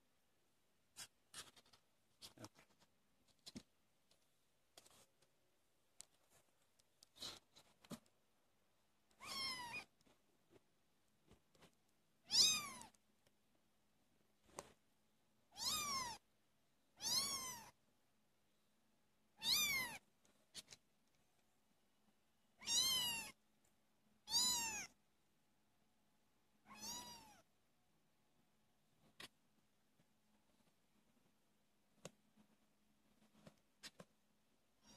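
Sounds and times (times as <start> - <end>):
kitten meowing: 9.2 - 9.9, 12.2 - 13.0, 15.5 - 16.2, 17.0 - 17.8, 19.4 - 20.0, 22.6 - 23.4, 24.3 - 24.9, 26.6 - 27.4.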